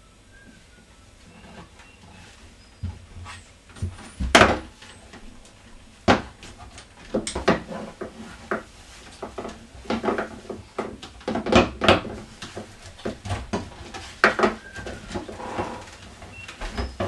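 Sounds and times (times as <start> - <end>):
wooden ladder rungs knocking: 3.7 - 5.4, 6.0 - 17.0.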